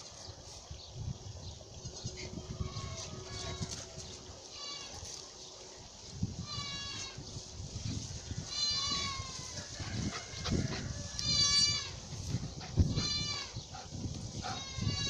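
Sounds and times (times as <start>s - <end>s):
animal crying out: 10.3s - 12.0s, 12.9s - 13.6s, 14.4s - 15.0s.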